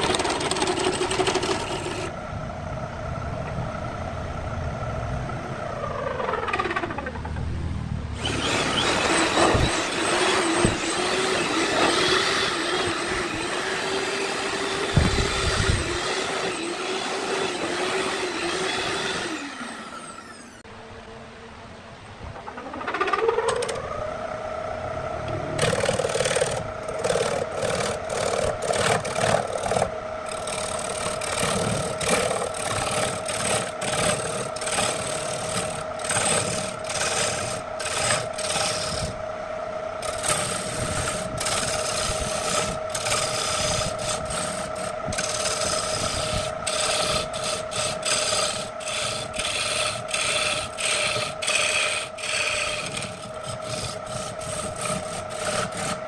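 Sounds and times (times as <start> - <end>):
tool scraping spinning wood: 0.0 - 2.2, 8.2 - 20.6, 25.3 - 39.2, 40.0 - 56.0
lathe motor hum: 0.0 - 7.0, 8.2 - 20.7, 23.5 - 56.0.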